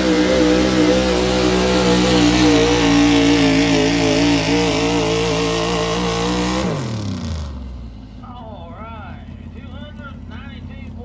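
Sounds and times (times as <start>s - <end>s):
truck engine at high revs: 0.0s - 8.2s.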